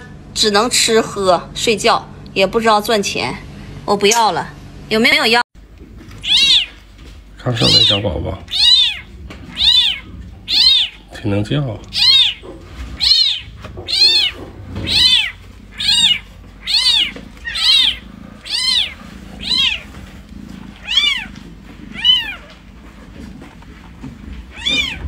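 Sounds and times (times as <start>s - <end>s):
kitten mewing: 6.2s - 11.2s, 11.8s - 19.9s, 20.6s - 22.6s, 24.5s - 25.0s.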